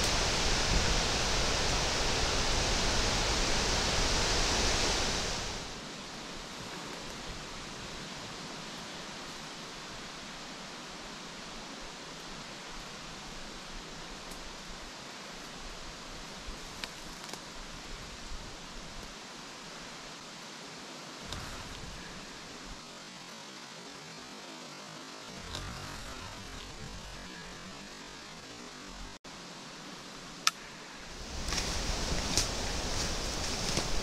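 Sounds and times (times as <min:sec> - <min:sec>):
wind buffeting microphone: 0:00.0 - 0:05.8
wind through leaves: 0:00.0 - 0:34.0.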